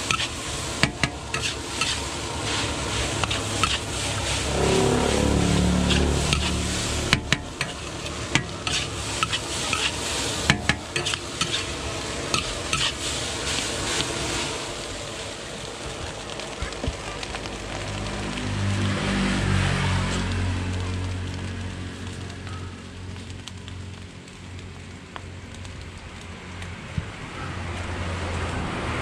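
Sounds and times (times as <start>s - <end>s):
metal spatula scraping a wok: 0.0s - 14.6s
food sizzling: 0.0s - 25.9s
low drone dropping in pitch: 4.3s - 8.5s.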